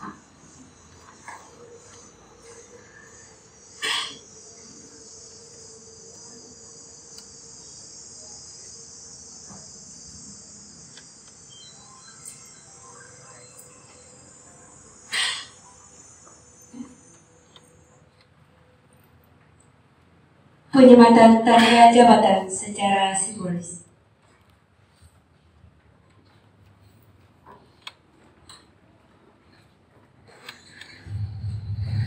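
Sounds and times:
crickets chirring: 0:00.0 - 0:23.9, 0:30.3 - 0:32.0
faint steady hum: 0:00.0 - 0:32.0.

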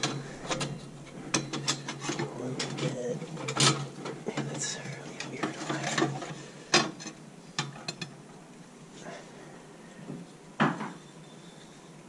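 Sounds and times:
metal tubes scraping: 0:00.0 - 0:07.2.

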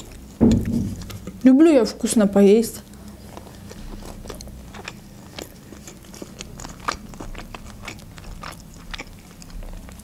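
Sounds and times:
person chewing with mouth closed: 0:00.0 - 0:01.4, 0:02.8 - 0:10.0
soft mouth clicks and crunches: 0:02.8 - 0:10.0.

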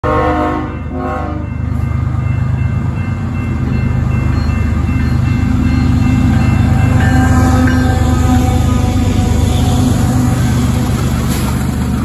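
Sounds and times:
locomotive horn blasts: 0:00.0 - 0:01.6, 0:06.7 - 0:10.6
locomotive engine rumble: 0:01.0 - 0:12.0.

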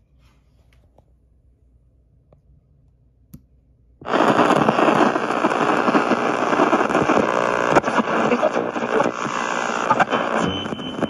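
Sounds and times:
radio static hiss: 0:04.0 - 0:11.0.

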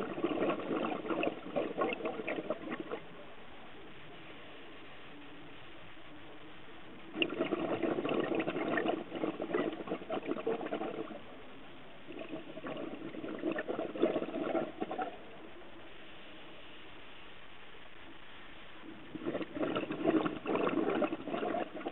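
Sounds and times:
underwater exhaled bubbles: 0:00.0 - 0:03.2, 0:06.9 - 0:11.4, 0:12.1 - 0:16.7, 0:18.8 - 0:21.9
faint steady hiss: 0:00.0 - 0:21.9.

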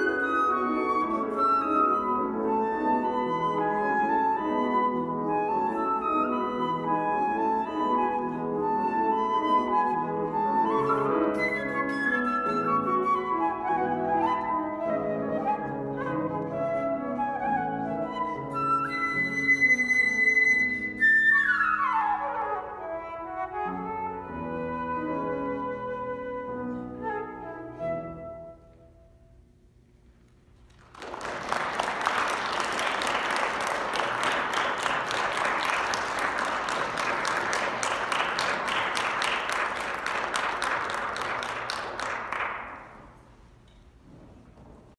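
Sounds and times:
flute and piano playing: 0:00.0 - 0:29.5
audience applause: 0:30.7 - 0:43.0.

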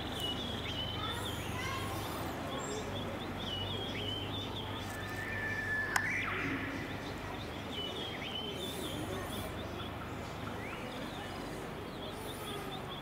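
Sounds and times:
small birds chirping: 0:00.0 - 0:13.0
whistled bird note: 0:04.8 - 0:07.2.

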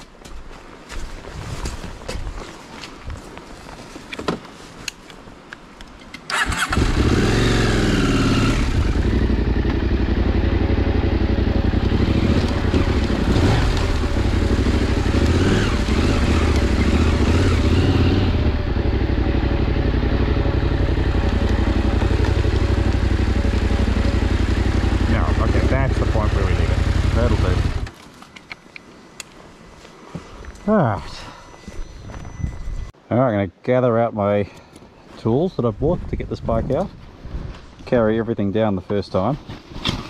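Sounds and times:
motorcycle engine revving and running: 0:06.3 - 0:27.9.

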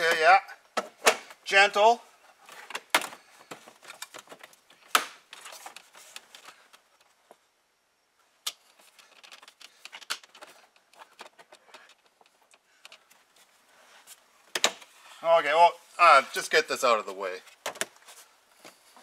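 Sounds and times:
rustling: 0:17.1 - 0:19.0.

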